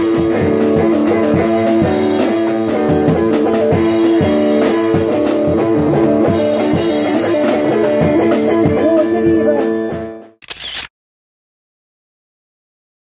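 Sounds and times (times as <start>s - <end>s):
drum kit beat: 0.0s - 10.3s
live band playing: 0.0s - 10.4s
guitar: 0.0s - 10.9s.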